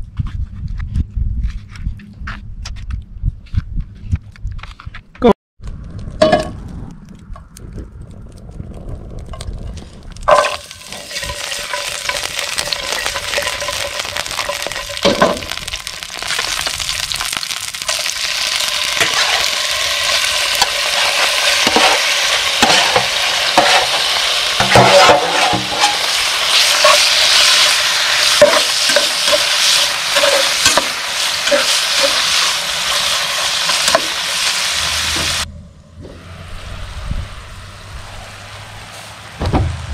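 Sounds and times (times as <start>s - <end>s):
metal spatula scraping a pan: 10.3s - 15.7s, 19.0s - 19.6s, 20.5s - 34.5s
food sizzling in a skillet: 10.3s - 35.5s.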